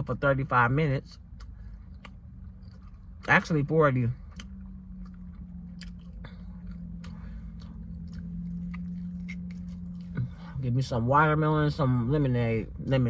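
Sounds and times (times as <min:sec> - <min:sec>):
steady low hum: 0:00.0 - 0:13.0
chewing fried chicken: 0:01.1 - 0:10.4.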